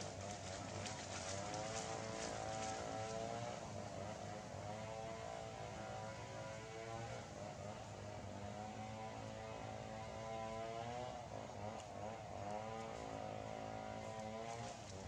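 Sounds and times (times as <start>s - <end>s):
faint engine running: 0.0s - 15.0s
low steady hum: 0.0s - 15.0s.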